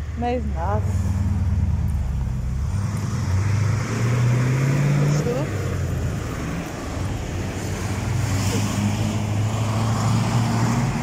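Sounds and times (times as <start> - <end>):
street traffic: 0.0 - 11.0
vehicle engine humming: 0.0 - 11.0.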